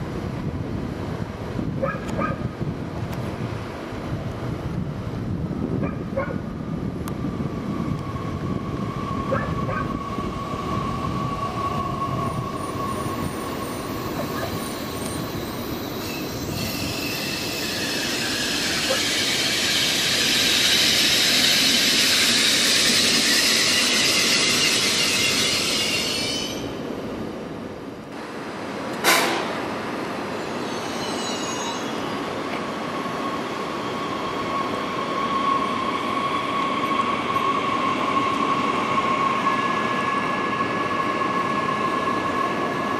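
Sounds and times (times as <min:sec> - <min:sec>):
train wheels squealing: 0:08.0 - 0:26.9, 0:30.3 - 0:42.9
sharp bang: 0:29.0 - 0:29.7.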